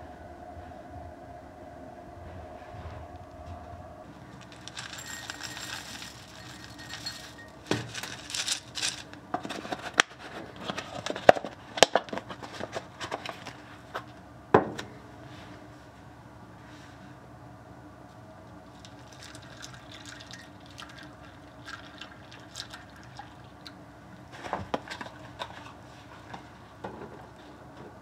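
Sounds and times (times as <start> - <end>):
oats rustling: 4.3 - 9.2
oats tapping and clinking in bowl: 4.4 - 9.0.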